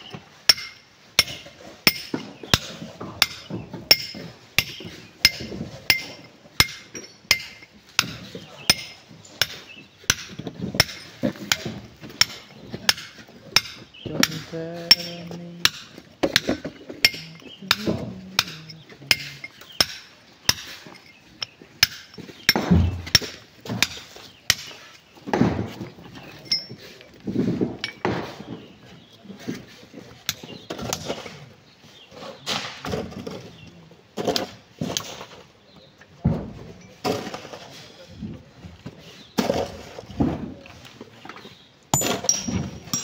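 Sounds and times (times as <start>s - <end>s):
hammer striking rock: 0.5s - 20.8s, 21.4s - 25.7s
dull thuds of rock breaking: 21.8s - 26.2s.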